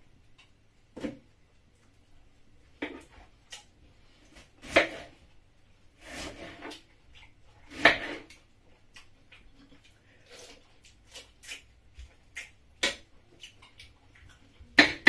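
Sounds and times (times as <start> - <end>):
knife scraping cut: 6.0 - 6.8.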